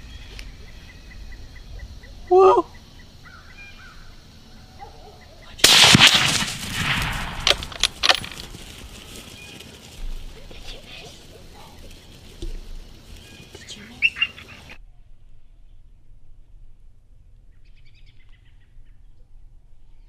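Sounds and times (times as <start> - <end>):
rifle shot: 5.6 - 8.5.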